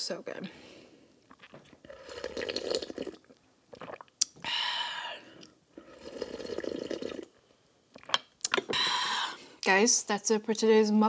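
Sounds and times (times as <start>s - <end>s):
wet chewing and smacking: 1.3s - 1.8s.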